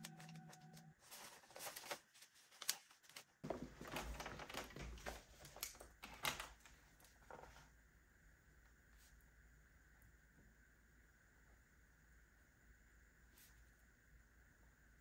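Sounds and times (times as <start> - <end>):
banknotes rustling: 0.0 - 7.5
papers rustling on desk: 0.0 - 7.7.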